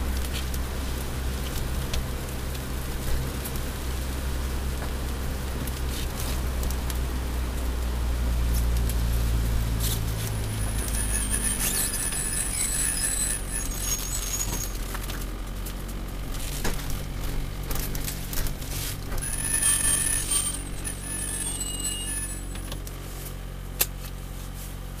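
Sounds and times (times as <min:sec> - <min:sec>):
car engine low drone: 0:00.0 - 0:23.8
high-pitched squeals: 0:09.8 - 0:15.1, 0:19.2 - 0:22.8.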